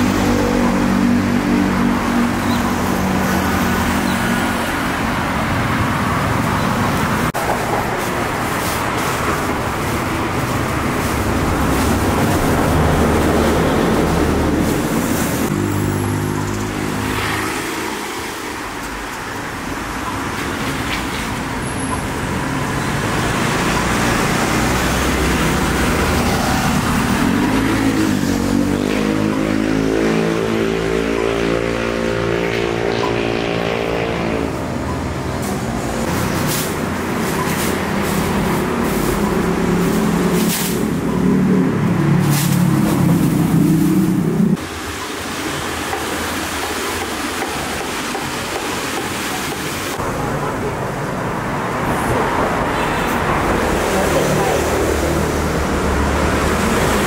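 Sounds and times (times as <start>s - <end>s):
cars passing on busy street: 0.0s - 57.0s.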